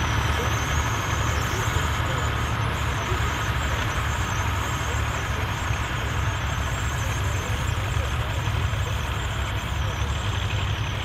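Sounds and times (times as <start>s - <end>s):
tractor engines running: 0.0s - 11.0s.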